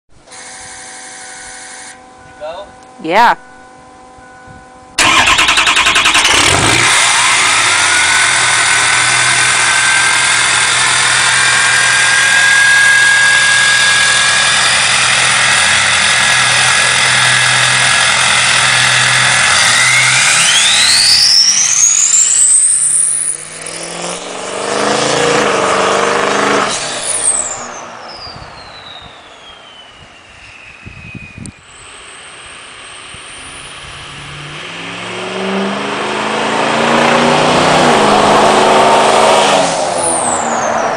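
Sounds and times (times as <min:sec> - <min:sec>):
diesel engine cranking and starting: 0:04.9 - 0:27.8
diesel engine clatter: 0:05.0 - 0:22.6
turbo whistle: 0:05.0 - 0:23.8, 0:26.7 - 0:33.8.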